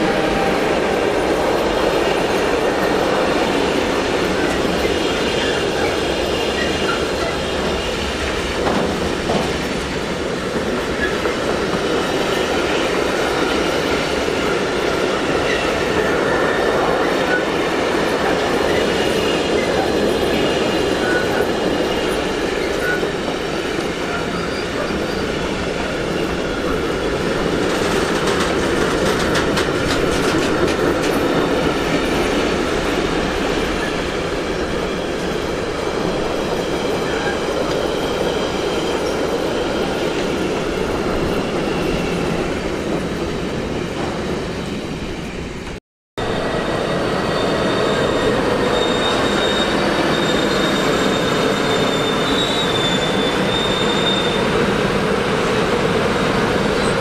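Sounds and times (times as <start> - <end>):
train wheels rumbling on rail: 0.0 - 57.0
wheels clacking over rail joints: 1.4 - 33.9
faint high wheel squeal: 18.6 - 26.9, 46.8 - 55.0.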